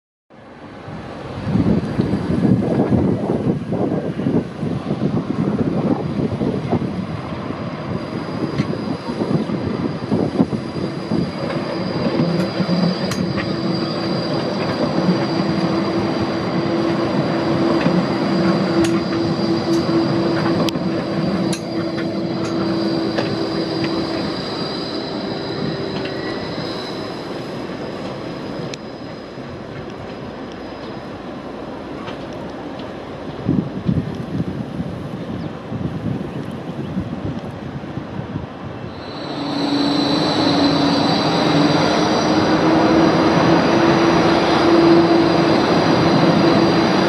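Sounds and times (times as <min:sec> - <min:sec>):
tram passing: 0:00.3 - 0:47.0.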